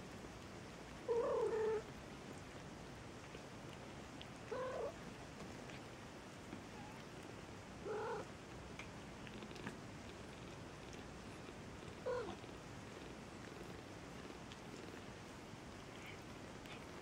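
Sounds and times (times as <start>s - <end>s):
cat purring: 1.0s - 17.0s
cat mewing: 4.5s - 5.0s, 7.8s - 8.3s, 12.0s - 12.4s.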